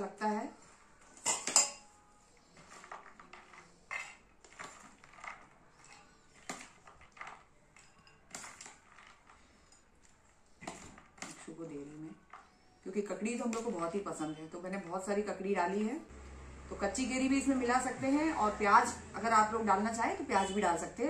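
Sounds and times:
metal spoon clinking on bowl: 0:01.2 - 0:01.9, 0:07.8 - 0:08.7.

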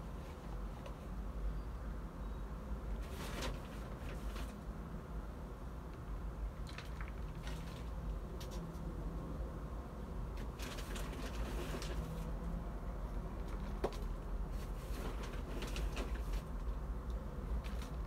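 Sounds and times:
paper sack rustling: 0:03.0 - 0:04.6, 0:10.4 - 0:12.3, 0:13.4 - 0:16.8, 0:17.6 - 0:18.0.

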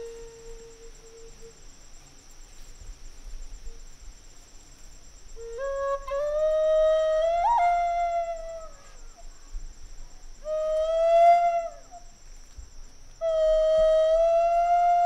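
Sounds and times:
flute playing long notes: 0:00.0 - 0:01.6, 0:05.4 - 0:09.2, 0:10.4 - 0:12.1, 0:13.2 - 0:15.0.

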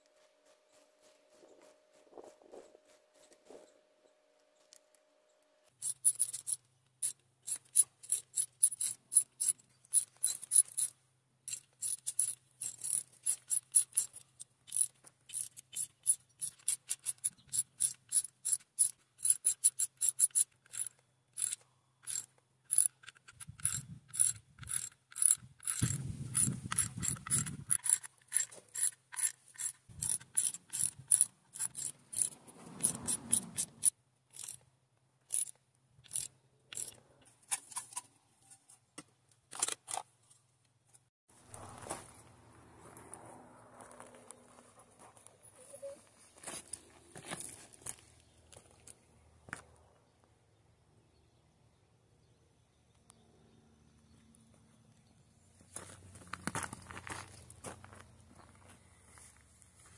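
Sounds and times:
ratchet wrench clicking: 0:05.8 - 0:10.9, 0:11.5 - 0:34.6, 0:35.3 - 0:37.0.

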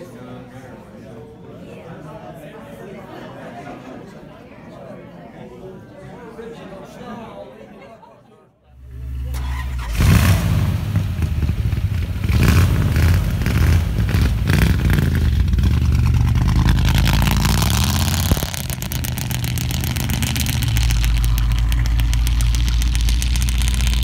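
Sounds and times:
car engine revving and idling: 0:08.8 - 0:24.0.

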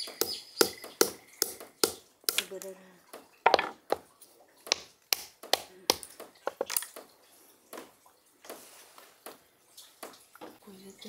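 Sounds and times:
hammer cracking walnut shells: 0:00.2 - 0:02.5, 0:04.7 - 0:06.9.

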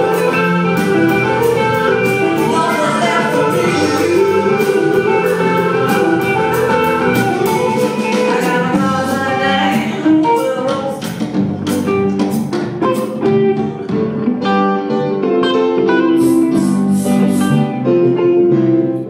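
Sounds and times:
person singing: 0:00.0 - 0:11.5, 0:15.9 - 0:18.0
live band playing: 0:00.0 - 0:19.0.

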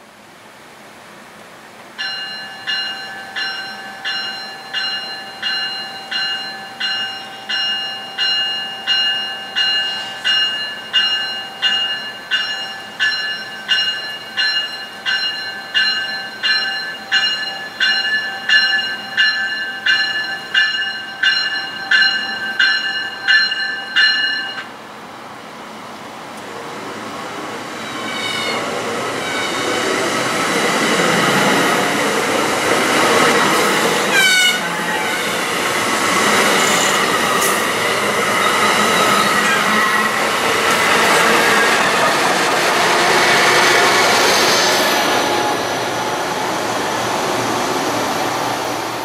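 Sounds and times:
steady high tone: 0:02.0 - 0:24.7
train warning bell ringing: 0:02.0 - 0:24.8, 0:29.2 - 0:42.6.

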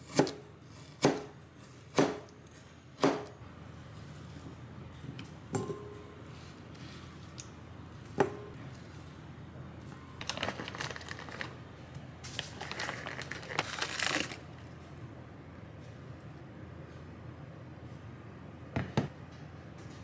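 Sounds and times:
plastic zipper bag crinkling: 0:10.2 - 0:11.6, 0:12.3 - 0:14.5.

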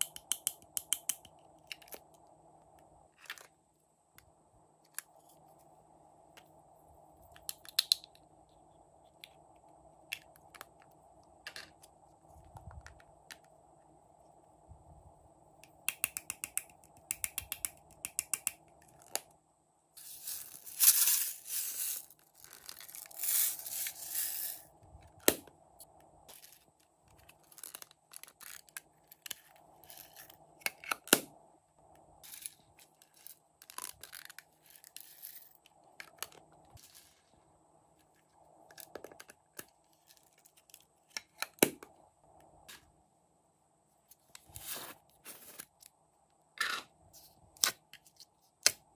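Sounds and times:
clicks and taps: 0:00.0 - 0:02.2, 0:15.6 - 0:19.2.

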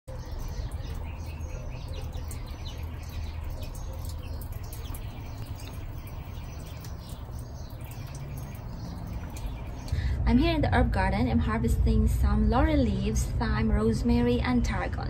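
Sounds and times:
small birds chirping: 0:00.1 - 0:10.2.

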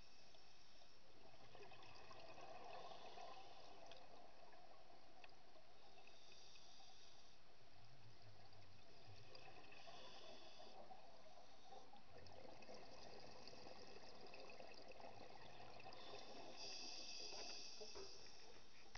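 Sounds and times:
underwater crackling hiss: 0:05.8 - 0:07.4, 0:08.9 - 0:11.9, 0:15.8 - 0:18.9.

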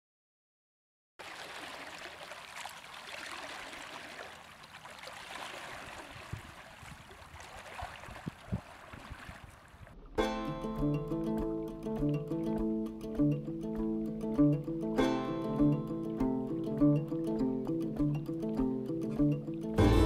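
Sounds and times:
stream water rushing: 0:01.2 - 0:09.8.

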